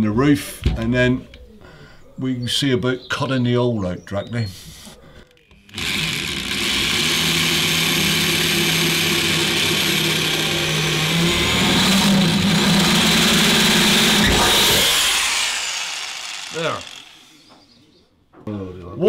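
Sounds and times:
power drill drilling: 0:05.3 - 0:17.8.

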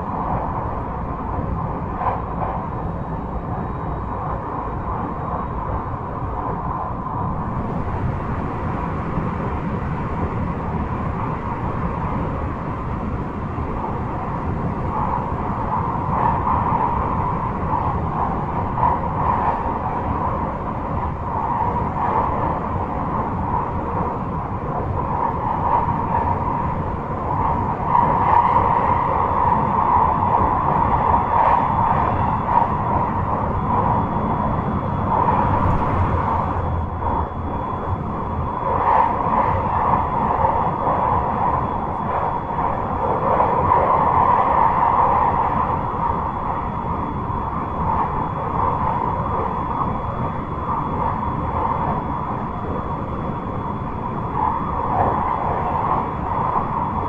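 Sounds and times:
train wheels rumbling on rails: 0:00.0 - 0:53.0
train hum: 0:00.0 - 0:57.0.

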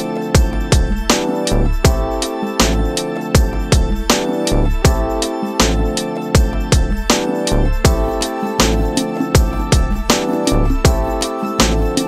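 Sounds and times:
instrumental music with drum beat: 0:00.0 - 0:12.0.

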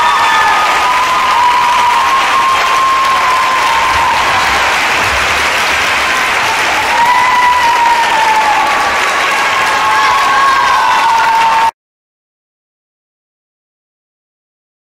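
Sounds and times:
audience clapping: 0:00.0 - 0:11.8.

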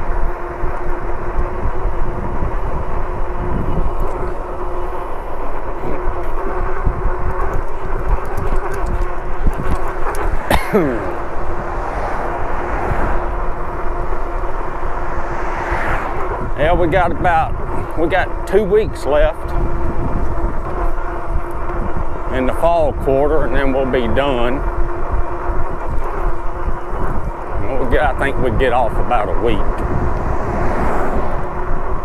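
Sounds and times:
road rumble: 0:00.0 - 0:32.0
steady hum: 0:00.0 - 0:32.0
wind buffeting microphone: 0:00.0 - 0:32.0
quick falling whine: 0:09.6 - 0:16.8.

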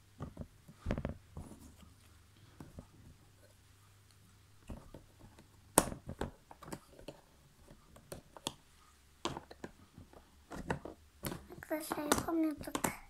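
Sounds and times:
puzzle pieces clicking and tapping: 0:09.2 - 0:13.0.

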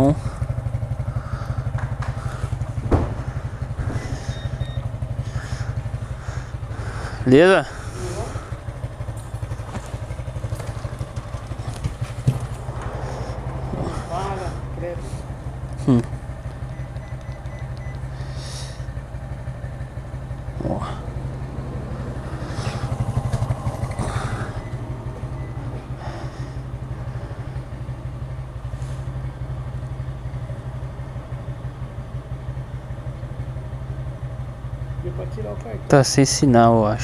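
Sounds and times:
motorcycle engine idling: 0:00.0 - 0:37.0
rustling and clatter: 0:09.1 - 0:14.0.

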